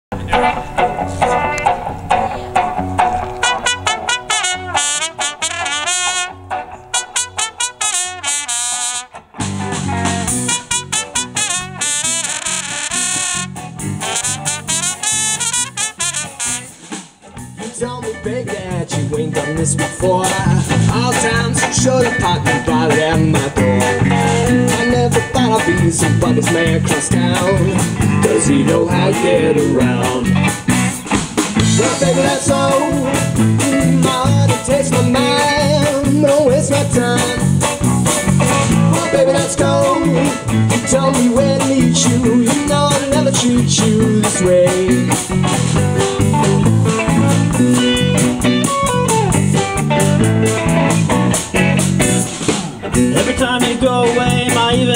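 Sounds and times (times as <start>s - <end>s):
drum kit: 0.1s - 54.9s
electric guitar: 0.1s - 54.9s
man singing: 17.6s - 30.5s, 31.6s - 37.7s, 38.7s - 45.3s, 52.9s - 54.9s.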